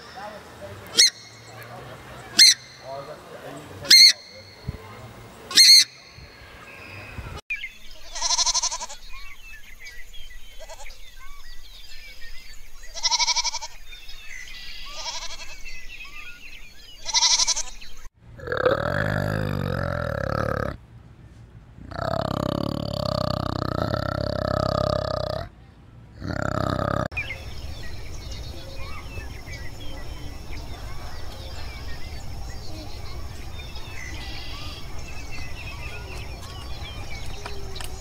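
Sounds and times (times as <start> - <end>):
animal bleating: 8.1 - 9.0, 10.6 - 11.0, 12.9 - 13.8, 14.8 - 15.6, 17.0 - 17.8, 18.4 - 20.8, 26.2 - 27.1
faint chirping: 26.2 - 38.0.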